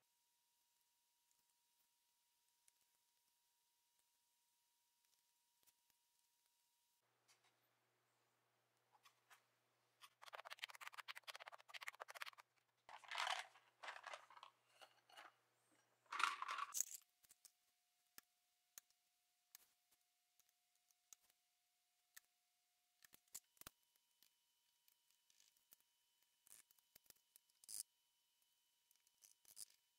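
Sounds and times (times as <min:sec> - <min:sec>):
plastic keyboard case rattling: 0:10.6 - 0:15.2, 0:16.1 - 0:16.8.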